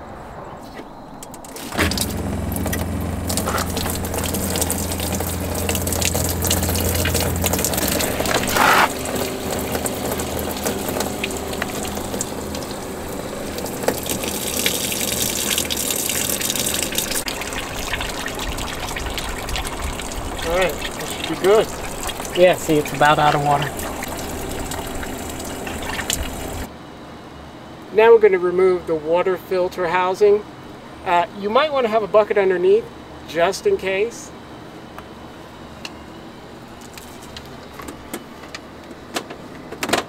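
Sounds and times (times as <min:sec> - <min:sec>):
water splashing from drains: 0:01.5 - 0:26.7
water pump humming: 0:01.6 - 0:26.7.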